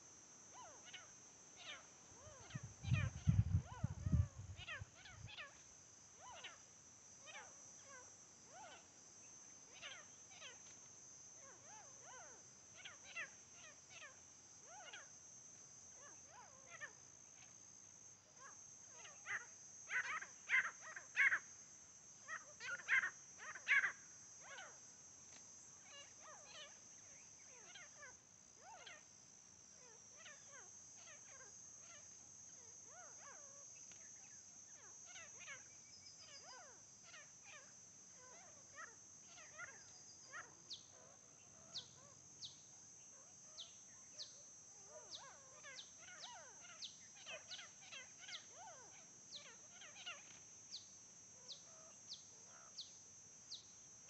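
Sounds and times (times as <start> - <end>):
francolins calling: 0.0 - 5.6, 6.2 - 6.6, 18.4 - 21.4, 22.3 - 24.8, 34.2 - 53.6.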